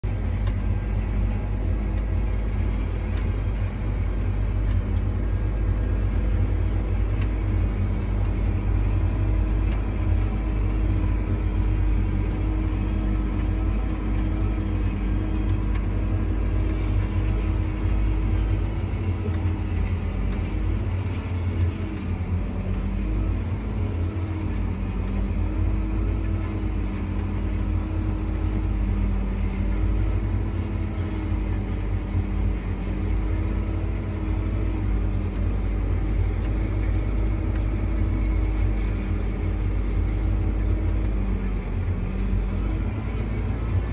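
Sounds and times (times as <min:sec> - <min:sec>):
tractor engine rumbling: 0:00.0 - 0:43.9.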